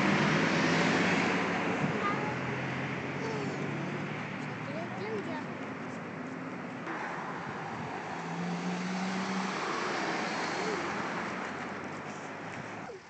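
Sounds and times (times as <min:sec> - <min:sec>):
car passing: 0:00.0 - 0:13.0.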